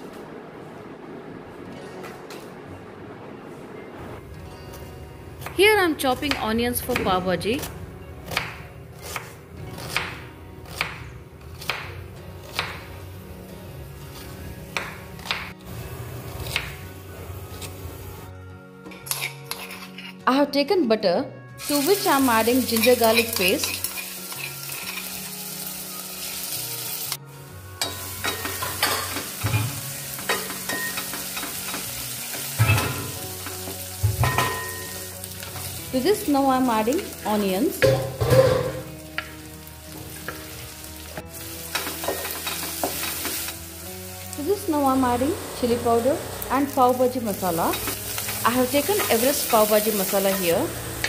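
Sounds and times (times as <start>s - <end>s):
soft background music: 0.0s - 51.0s
paste sizzling in butter: 21.6s - 27.2s.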